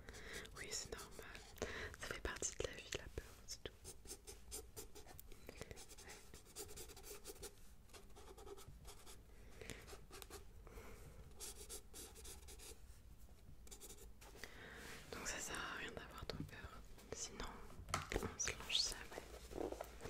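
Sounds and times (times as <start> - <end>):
pencil scratching on paper: 3.8 - 5.2, 5.8 - 9.2, 11.4 - 12.8, 13.7 - 14.1.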